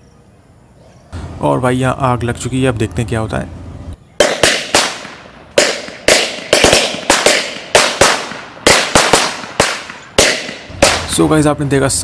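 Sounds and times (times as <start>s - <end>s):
firecrackers banging in pressure cooker: 4.2s - 11.1s.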